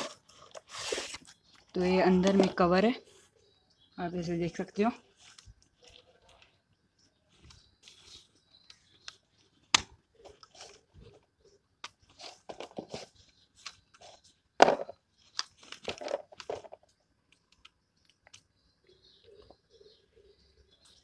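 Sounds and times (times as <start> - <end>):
tripod parts clicking and knocking: 11.8 - 18.4.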